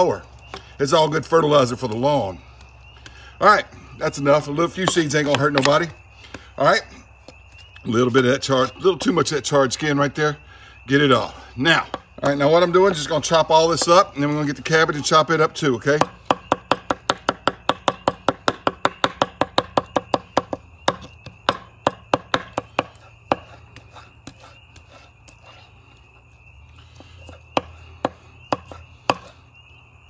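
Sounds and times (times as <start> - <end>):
knife chopping on wooden board: 16.0 - 24.9, 27.3 - 29.3.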